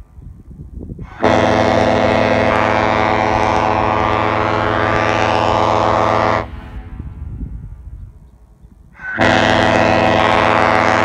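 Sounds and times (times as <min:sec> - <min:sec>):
ship air horn blast: 0:01.0 - 0:07.3, 0:09.0 - 0:11.0.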